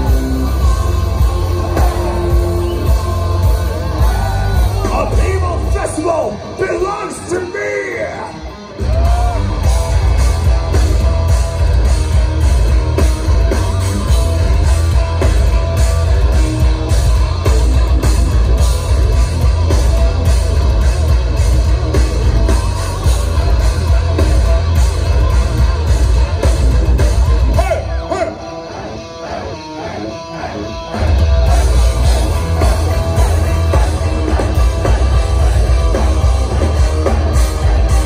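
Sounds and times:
crowd voices: 0:00.0 - 0:38.0
live heavy metal band: 0:00.0 - 0:38.0.

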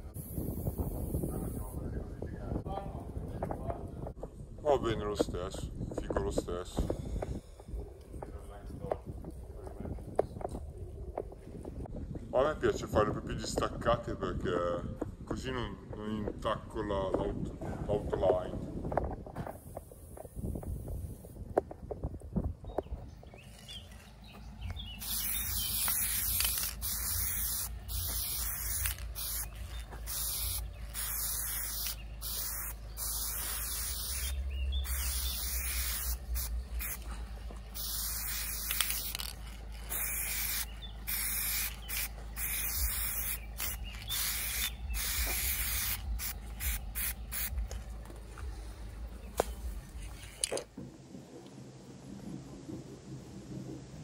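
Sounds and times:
spray paint can spraying: 0:00.2 - 0:01.2, 0:25.0 - 0:37.1, 0:37.7 - 0:47.8.

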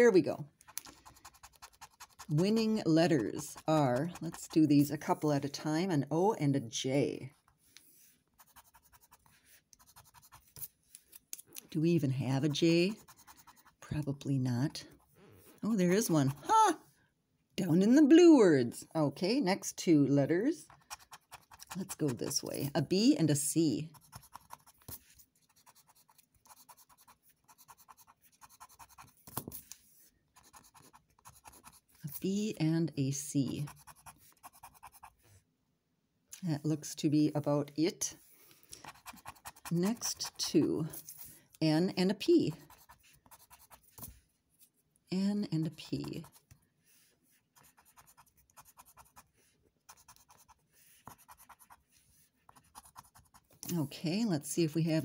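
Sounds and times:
scraper scratching lottery ticket: 0:00.0 - 0:05.0, 0:08.3 - 0:10.7, 0:12.4 - 0:13.8, 0:20.6 - 0:22.8, 0:23.8 - 0:29.2, 0:30.3 - 0:32.0, 0:33.4 - 0:35.2, 0:38.8 - 0:41.2, 0:47.6 - 0:53.5.

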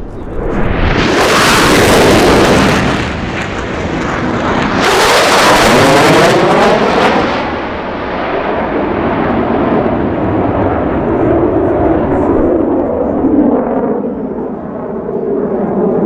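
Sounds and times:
fighter jets roaring past: 0:00.0 - 0:16.0.

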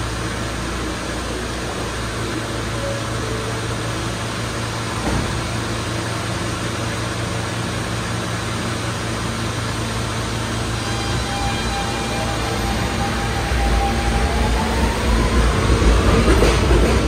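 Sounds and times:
subway train equipment hum: 0:00.0 - 0:17.0
train doors closing thump: 0:04.9 - 0:05.6.

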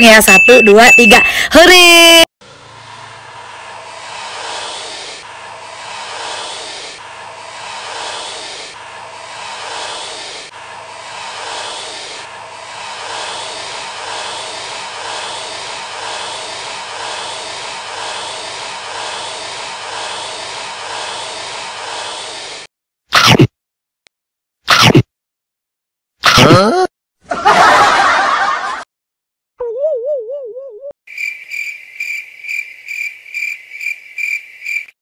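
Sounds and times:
snake hissing: 0:03.9 - 0:22.7.

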